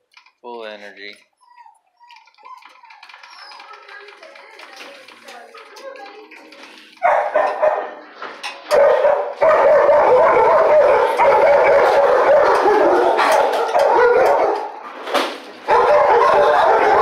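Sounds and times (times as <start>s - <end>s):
dogs barking and howling: 1.5s - 3.9s, 7.0s - 8.0s, 8.7s - 14.9s, 15.6s - 17.0s.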